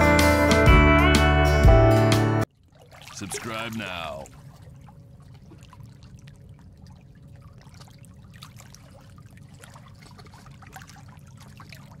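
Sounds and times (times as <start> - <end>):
running water: 2.4 - 12.0
small splashes and drips: 2.5 - 12.0.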